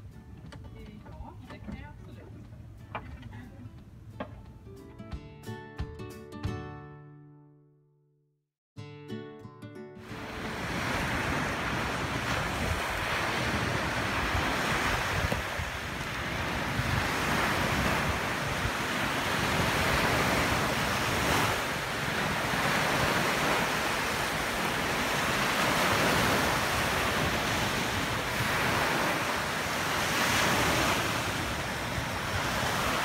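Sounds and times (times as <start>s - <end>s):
small waves washing up beach: 10.1s - 33.0s.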